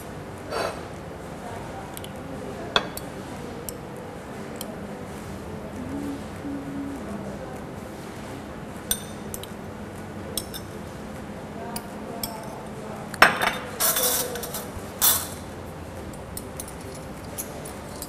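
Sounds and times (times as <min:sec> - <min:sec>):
spoons clinking on ceramic bowls: 0:10.4 - 0:10.8, 0:13.2 - 0:15.4.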